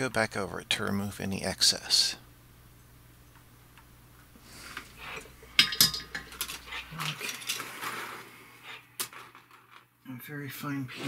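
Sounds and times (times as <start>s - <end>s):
circuit board and tools clattering: 4.8s - 9.9s.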